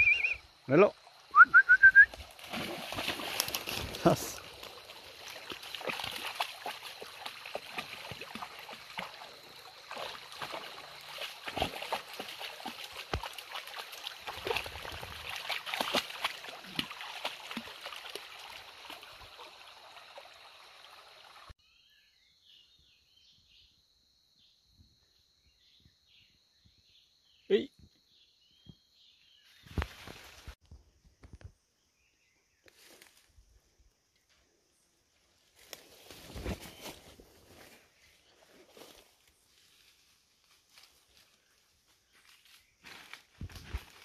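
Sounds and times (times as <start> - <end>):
dog splashing through water: 2.2 - 20.5
shallow stream rushing: 2.2 - 21.5.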